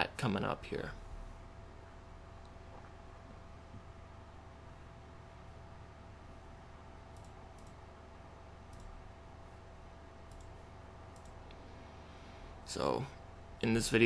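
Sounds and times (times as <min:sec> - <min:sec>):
low electrical hum: 0:00.0 - 0:14.0
computer mouse clicks: 0:07.1 - 0:07.8, 0:08.7 - 0:09.0, 0:10.2 - 0:11.6.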